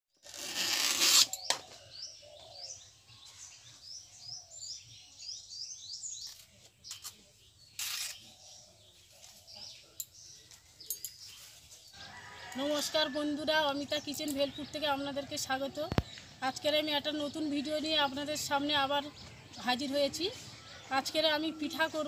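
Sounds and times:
small bird chirping: 0:00.9 - 0:12.6.

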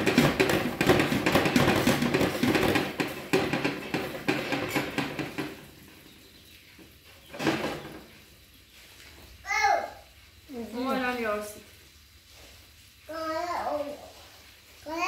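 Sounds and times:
hard objects knocking and rattling: 0:00.0 - 0:06.2, 0:06.8 - 0:08.2.

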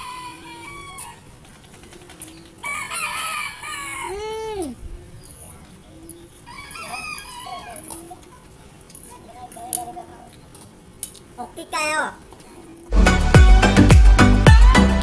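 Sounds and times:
rooster crowing: 0:00.0 - 0:01.3, 0:02.6 - 0:04.3, 0:06.4 - 0:08.0.

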